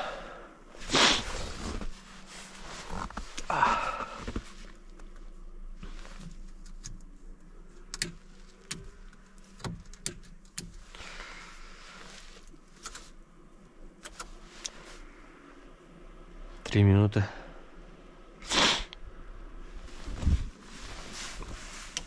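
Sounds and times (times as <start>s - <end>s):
faint low hum: 0.0s - 22.0s
rustling from handling things: 0.8s - 7.2s, 19.8s - 22.0s.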